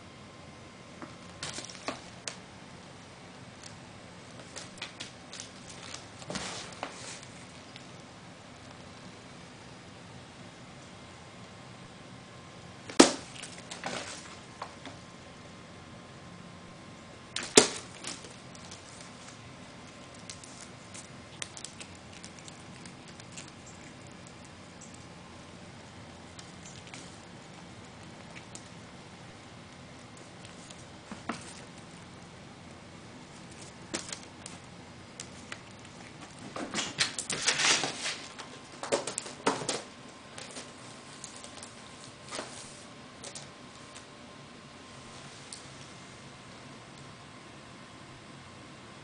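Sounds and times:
wrapping paper crinkling: 4.3s - 8.0s
rustling and scuffing: 5.7s - 7.4s.

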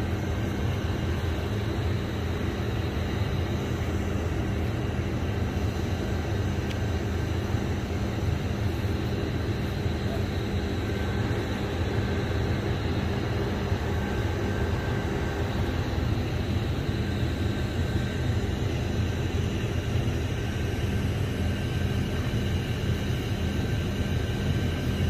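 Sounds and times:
faint steady whine: 0.0s - 25.0s.

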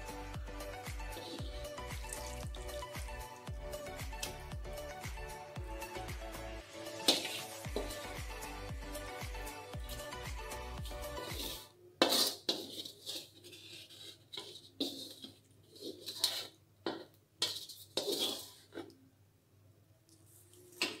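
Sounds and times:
background music: 0.0s - 11.8s
broth pouring into bowl: 1.4s - 3.5s.

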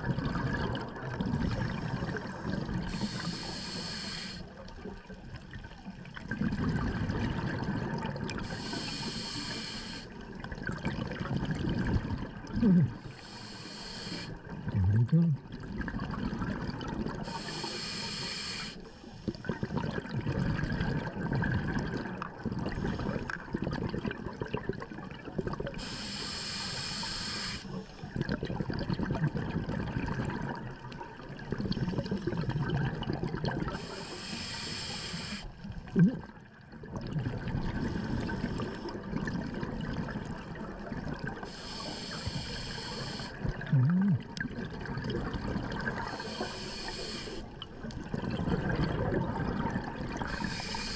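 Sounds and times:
gurgle of exhaled bubbles: 0.0s - 3.3s, 4.5s - 9.0s, 10.2s - 13.2s, 14.4s - 17.5s, 19.3s - 25.8s, 28.0s - 34.1s, 35.6s - 41.6s, 43.2s - 50.9s
regulator inhalation hiss: 2.9s - 4.5s, 8.4s - 10.2s, 13.1s - 14.5s, 17.2s - 19.4s, 25.8s - 28.1s, 33.8s - 35.6s, 41.4s - 43.4s, 46.0s - 47.5s, 50.3s - 50.9s.

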